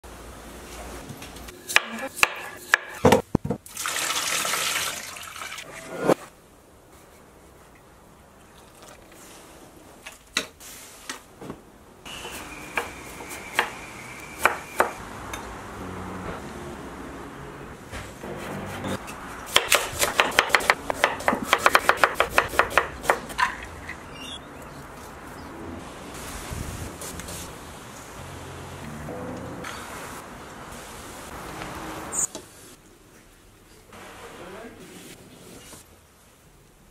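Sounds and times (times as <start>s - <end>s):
water pouring into pot: 3.7s - 5.6s
knife chopping on wooden board: 19.5s - 23.6s.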